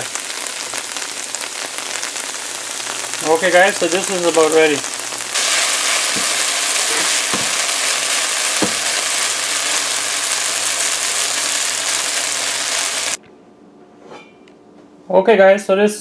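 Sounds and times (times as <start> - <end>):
okra sizzling in oil: 0.0 - 13.2
spoon knocking on pan: 7.0 - 7.6, 8.6 - 8.9.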